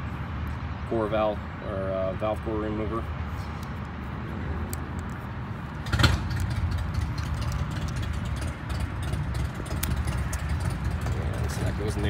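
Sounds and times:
low engine-like rumble: 0:02.8 - 0:12.0
metal screwdriver bits clicking: 0:04.7 - 0:05.2.

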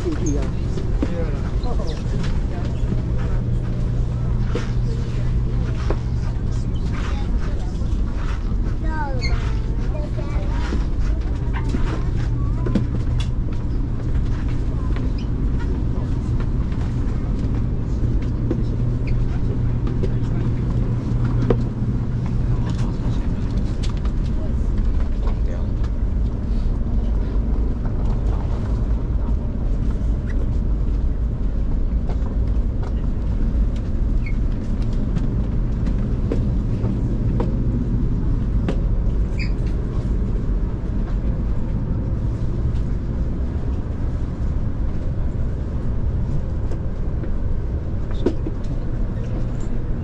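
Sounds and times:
vehicle rumble from inside cabin: 0:00.0 - 0:50.0.

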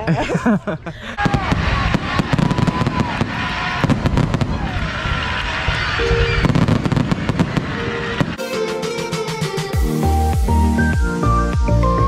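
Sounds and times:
fireworks crackling and popping: 0:01.2 - 0:08.4.

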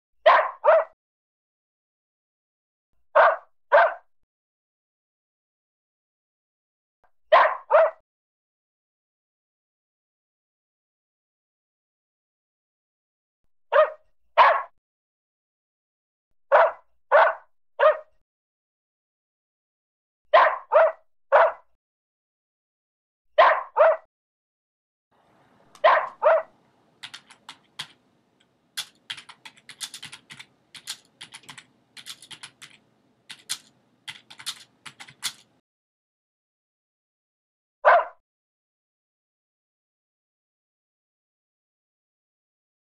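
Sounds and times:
small dog barking: 0:00.2 - 0:01.0, 0:03.2 - 0:04.0, 0:07.3 - 0:08.0, 0:13.7 - 0:14.7, 0:16.5 - 0:18.2, 0:20.3 - 0:21.6, 0:23.4 - 0:24.1, 0:25.8 - 0:26.5, 0:37.8 - 0:38.2
keyboard typing: 0:26.9 - 0:35.6.

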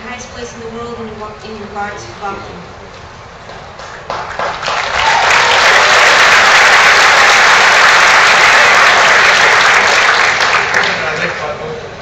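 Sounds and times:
audience applauding: 0:03.9 - 0:11.6.

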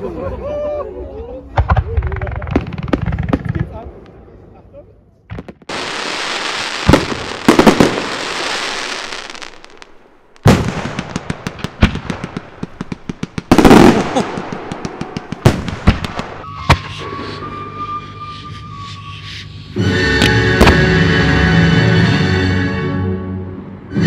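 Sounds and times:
firework bangs and booms: 0:01.6 - 0:03.8, 0:05.3 - 0:17.2, 0:20.2 - 0:21.3
fireworks crackling: 0:05.4 - 0:21.1
music: 0:16.4 - 0:24.0.

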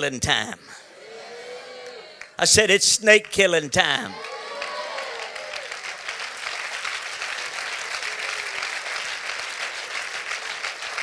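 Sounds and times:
congregation clapping: 0:03.1 - 0:11.0.

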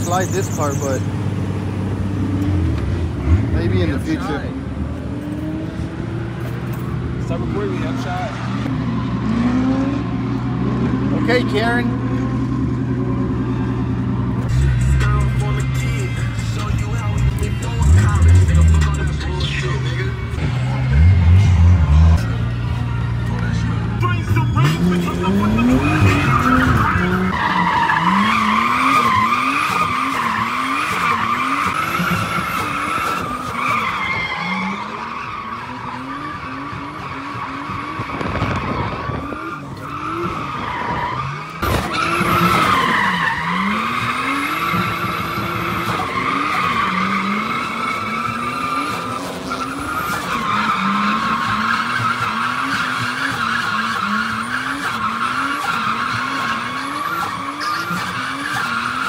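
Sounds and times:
car engine revving: 0:00.0 - 0:59.0
tyres squealing: 0:23.4 - 0:59.0.

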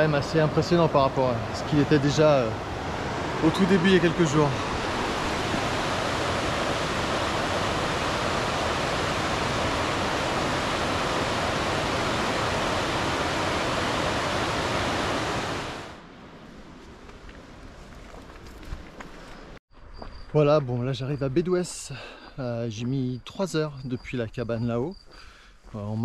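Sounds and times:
river water rushing: 0:00.0 - 0:16.0.

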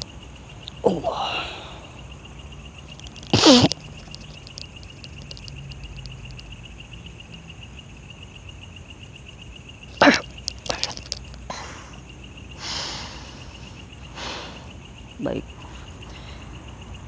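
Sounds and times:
night insects trilling: 0:00.0 - 0:17.0
faint high clicks: 0:02.8 - 0:06.6, 0:09.9 - 0:11.5.

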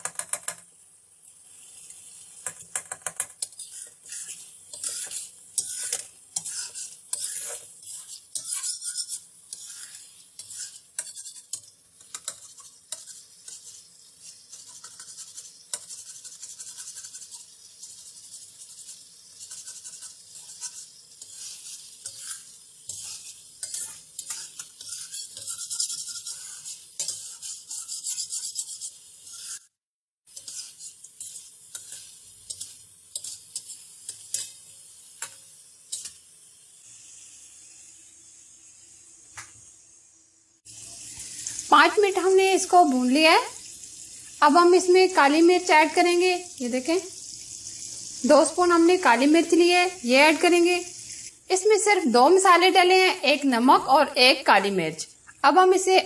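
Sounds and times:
chicken sizzling in oil: 0:00.1 - 0:56.0
metal spatula scraping pan: 0:02.5 - 0:34.6.

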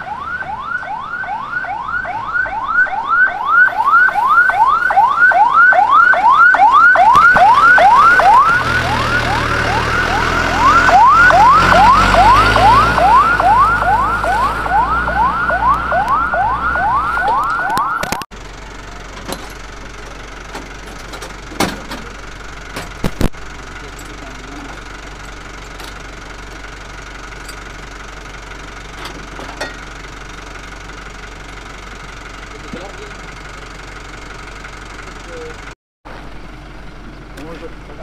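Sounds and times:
fire truck siren yelping: 0:00.0 - 0:35.7.

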